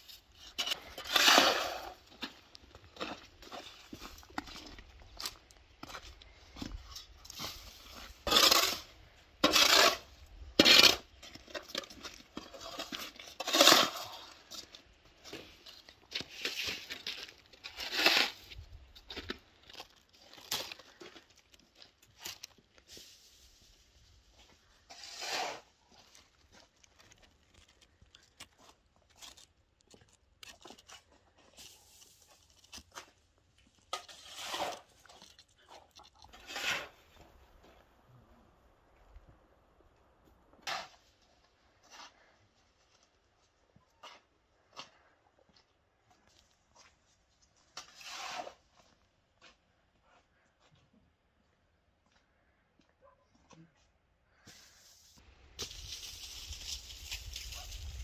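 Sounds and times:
snow shovel scraping concrete: 0.0s - 4.6s, 6.6s - 19.4s, 22.8s - 26.1s, 33.8s - 35.2s, 36.3s - 37.5s, 40.6s - 41.2s, 47.8s - 48.8s.

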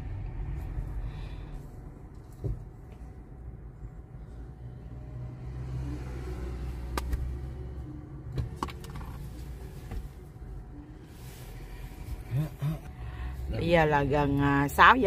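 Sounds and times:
traffic passing: 0.0s - 15.0s
car engine idling: 5.8s - 15.0s.

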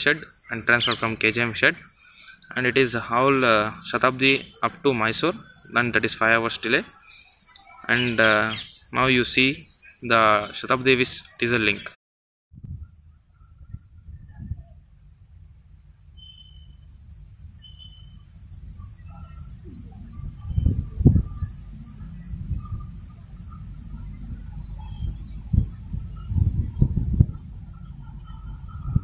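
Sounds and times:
high insect drone: 0.0s - 11.9s, 12.6s - 29.0s
bird chirps: 0.0s - 12.0s, 16.1s - 29.0s
low rumble: 12.6s - 29.0s.

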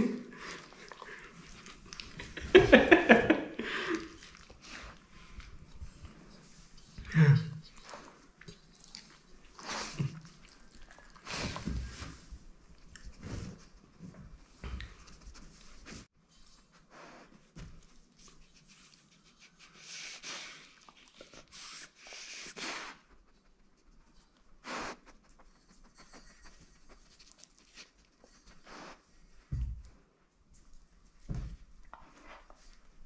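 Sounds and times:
dog sniffing and licking: 7.6s - 29.2s.

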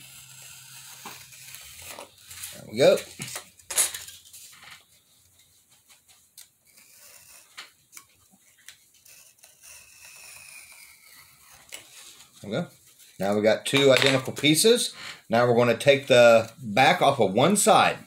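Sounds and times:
craft knife scraping: 0.0s - 4.3s, 6.6s - 12.3s.

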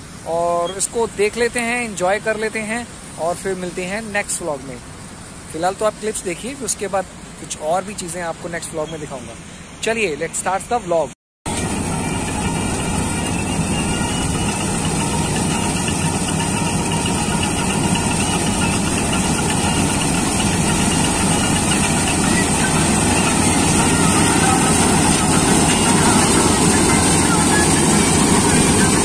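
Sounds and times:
combine harvester droning: 11.5s - 29.0s
thin high whine: 11.5s - 29.0s.

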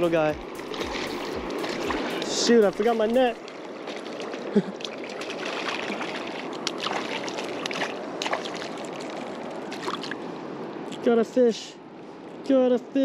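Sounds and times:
fast-flowing river rushing: 0.0s - 10.8s
fish splashing at surface: 0.6s - 2.3s, 3.4s - 10.2s.

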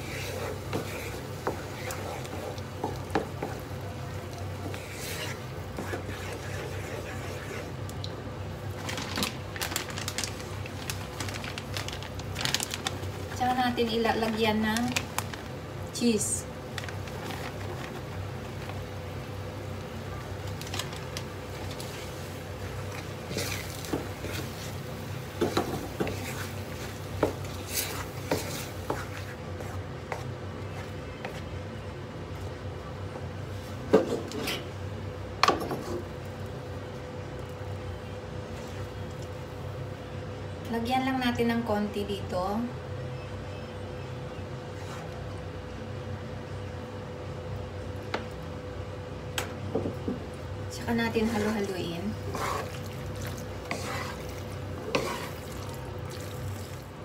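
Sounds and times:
wooden spatula stirring sauce: 0.0s - 7.8s, 21.5s - 31.5s, 50.7s - 56.8s
steady low hum: 0.0s - 57.0s.

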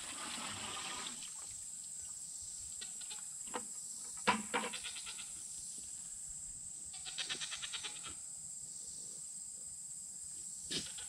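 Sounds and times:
steady high-pitched hiss: 0.0s - 11.0s
goat bleating: 7.0s - 8.2s.

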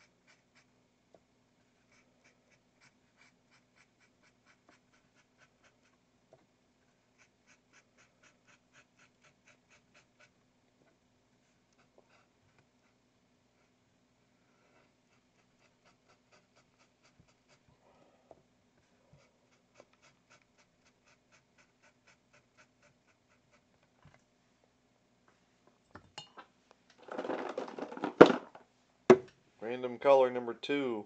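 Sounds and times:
paintbrush dabbing ticks: 0.0s - 0.8s, 1.6s - 6.1s, 6.9s - 10.4s, 11.6s - 13.0s, 15.0s - 17.7s, 19.1s - 23.9s
rustling and knocking: 27.0s - 29.4s.

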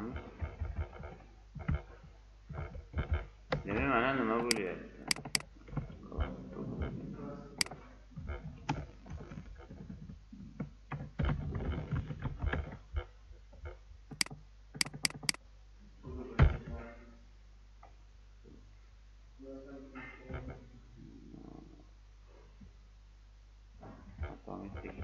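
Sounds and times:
keyboard keystrokes: 4.5s - 5.4s, 14.2s - 15.4s
computer mouse clicks: 4.5s - 5.5s, 14.1s - 15.4s.

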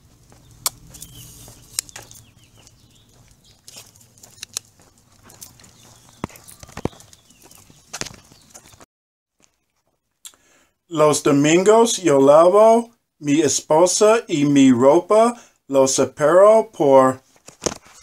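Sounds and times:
footsteps on concrete: 0.0s - 9.6s.

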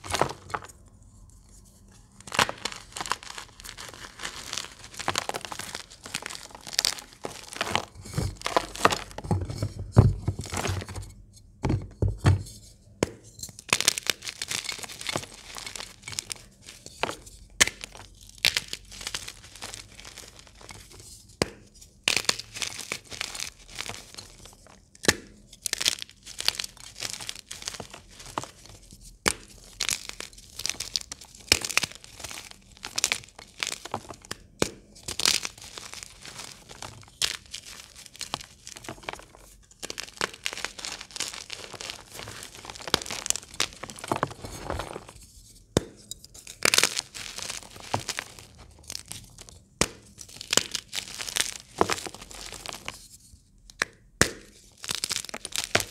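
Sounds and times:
chalk crunching by hand: 1.4s - 9.2s, 35.0s - 53.1s.

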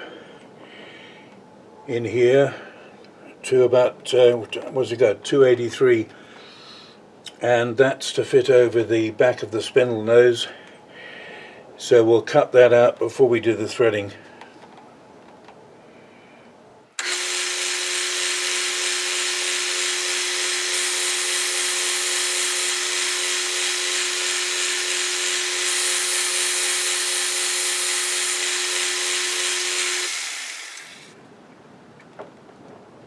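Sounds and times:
metal lathe whining: 17.0s - 31.1s.

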